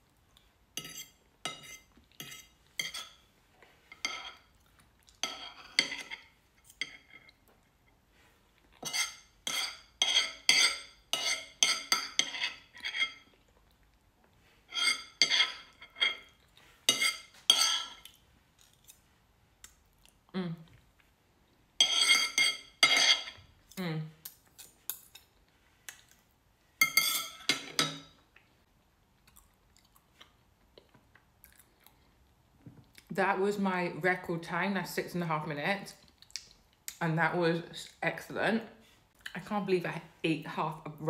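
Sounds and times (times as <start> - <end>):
fork and knife scraping a plate: 0.8 - 3.2, 3.9 - 4.5, 5.2 - 7.4, 8.8 - 13.4, 14.6 - 18.1, 21.8 - 23.4, 26.8 - 28.1.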